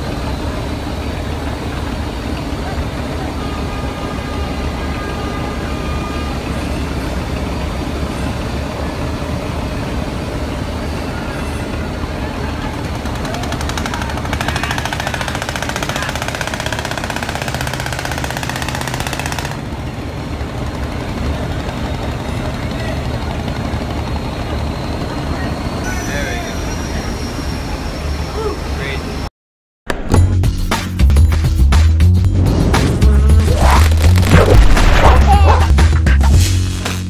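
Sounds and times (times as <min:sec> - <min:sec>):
diesel engine low rumble: 0:00.0 - 0:29.3, 0:31.0 - 0:36.8
fast mechanical rattle: 0:12.8 - 0:22.3.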